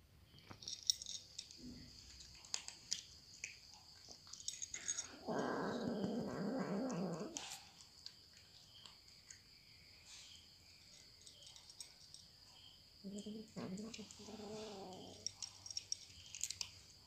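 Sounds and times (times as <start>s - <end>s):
cats crunching dry kibble: 0.6s - 9.5s, 13.6s - 16.9s
cat growling: 4.8s - 7.8s, 13.0s - 15.3s.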